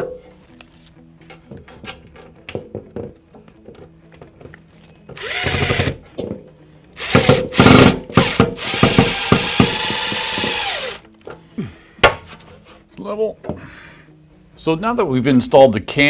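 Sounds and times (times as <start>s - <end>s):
cordless drill driving screws: 5.1s - 6.0s, 7.0s - 11.0s.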